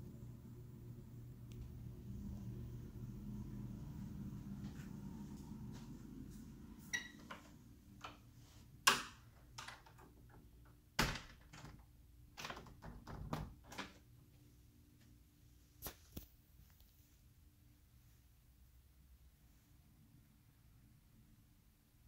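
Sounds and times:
low hum: 0.0s - 8.3s.

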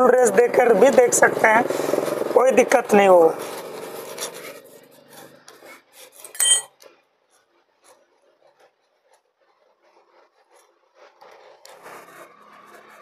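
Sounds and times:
metal tool scraping in screw slot: 6.2s - 6.7s
sharp metallic clink: 6.3s - 6.8s.

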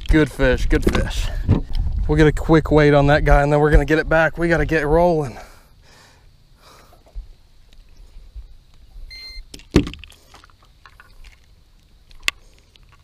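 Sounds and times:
electronic scale beep: 9.1s - 9.5s.

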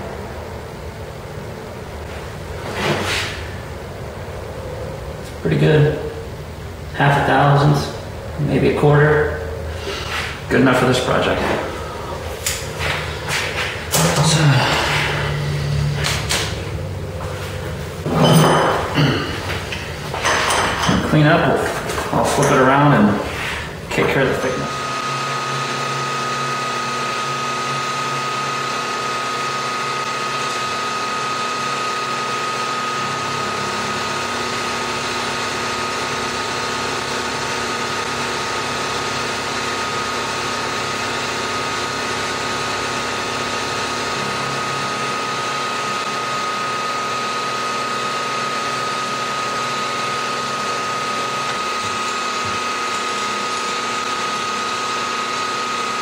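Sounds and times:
milling machine cutting metal: 24.4s - 56.0s.

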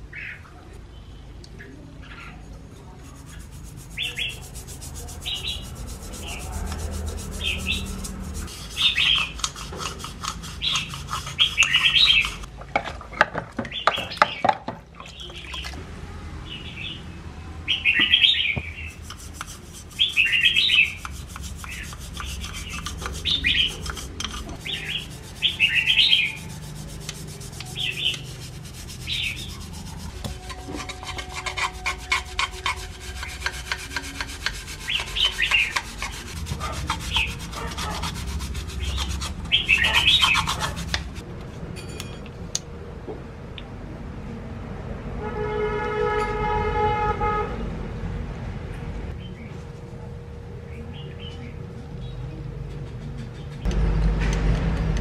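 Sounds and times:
toothbrush scrubbing in water: 3.0s - 12.5s, 18.8s - 41.2s
steady pitched tone: 23.2s - 41.2s.

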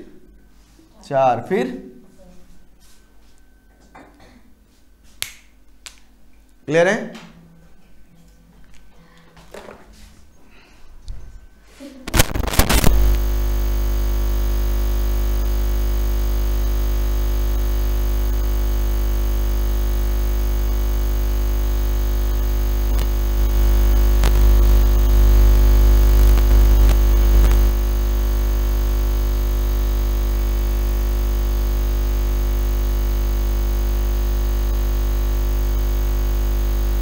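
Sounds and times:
deep mains hum: 0.0s - 37.0s
loud electrical buzz: 12.1s - 37.0s.

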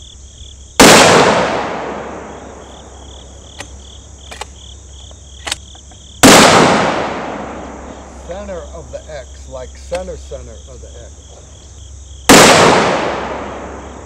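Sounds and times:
insects chirping: 0.0s - 14.0s
rifle shots with rolling echo: 0.8s - 4.6s, 5.4s - 8.2s, 12.2s - 14.0s.

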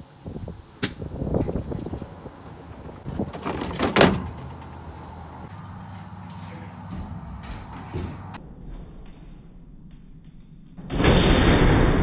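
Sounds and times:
low engine hum: 1.2s - 8.5s
scrap junk clattering: 3.0s - 5.0s
loud crash: 10.8s - 12.0s.

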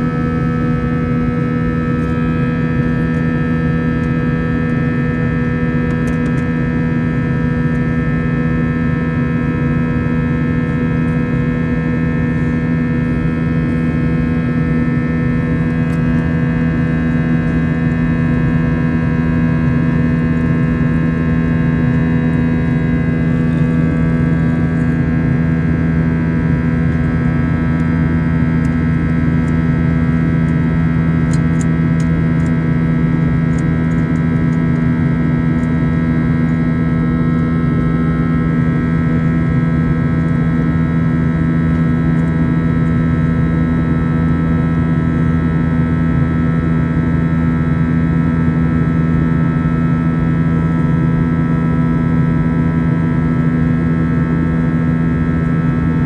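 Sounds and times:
jet engine drone in cabin: 0.0s - 56.0s.

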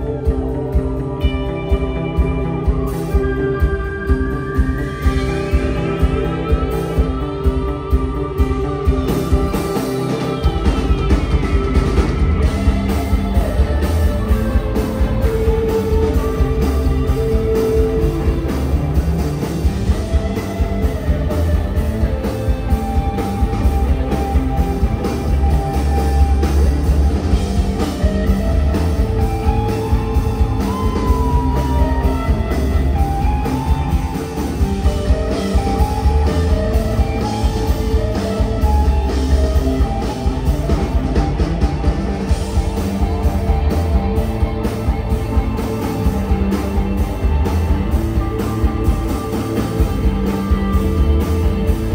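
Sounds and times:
live rock band playing: 0.0s - 51.9s.

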